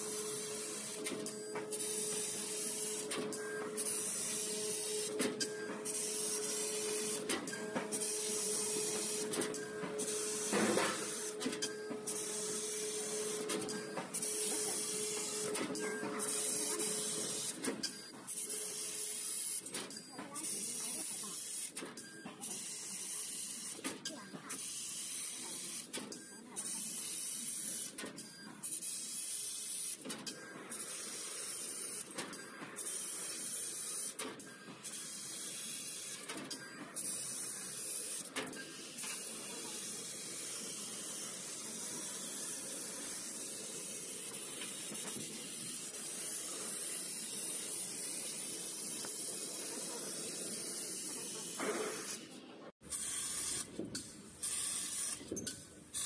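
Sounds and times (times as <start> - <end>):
hiss of laser cutter gas: 37.0 - 52.3, 52.9 - 53.7, 54.4 - 55.3.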